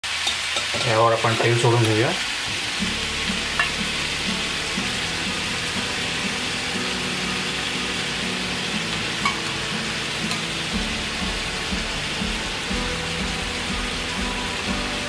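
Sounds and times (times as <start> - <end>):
chicken sizzling in oil: 0.0 - 15.0
quiet background music: 1.7 - 15.0
oil popping: 2.4 - 6.3.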